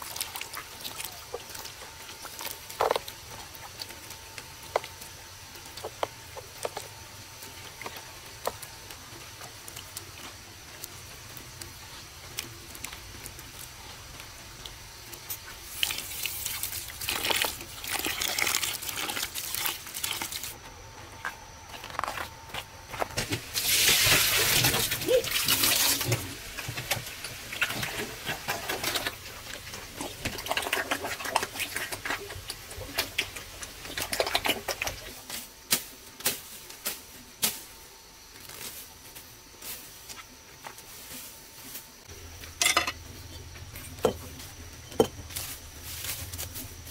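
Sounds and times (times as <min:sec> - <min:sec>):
wet mash squelching in metal basin: 0:00.0 - 0:20.6, 0:21.7 - 0:35.4.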